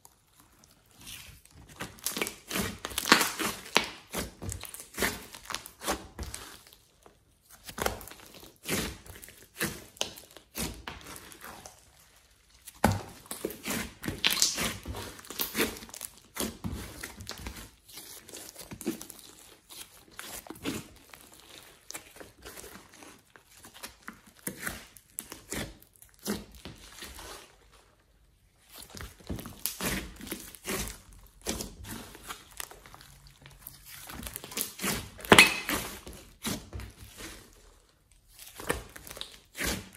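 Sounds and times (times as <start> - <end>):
slime crackling and squelching: 0.0 - 39.9.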